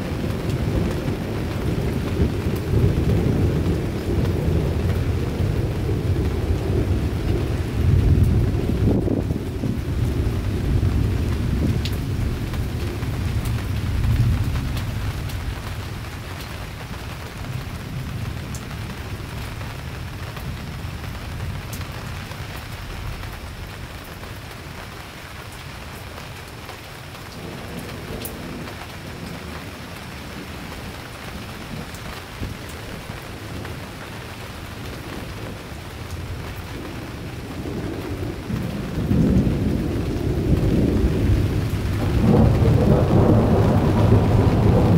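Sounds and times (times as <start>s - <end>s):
thunder rumbling: 0.0s - 24.1s, 27.3s - 44.9s
steady rain: 0.0s - 44.9s.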